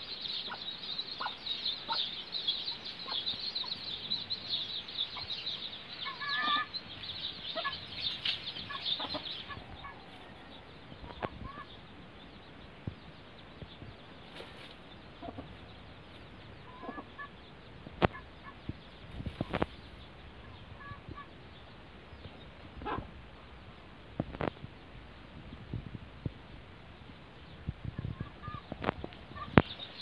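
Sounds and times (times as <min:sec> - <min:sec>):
hen clucking: 0:00.0 - 0:12.0, 0:15.1 - 0:21.4, 0:22.8 - 0:23.1, 0:27.9 - 0:30.0
chicks peeping: 0:00.0 - 0:30.0.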